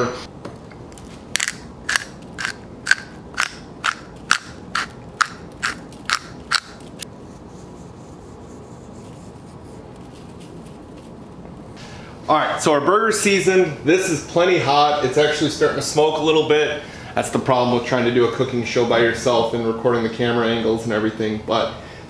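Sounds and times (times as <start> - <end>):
pepper mill grinding: 0.9 - 7.0.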